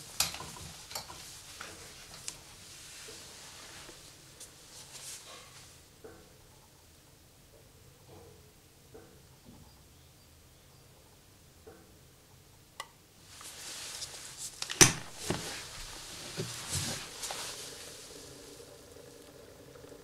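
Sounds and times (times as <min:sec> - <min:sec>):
hissing and crackling: 0:13.2 - 0:20.0.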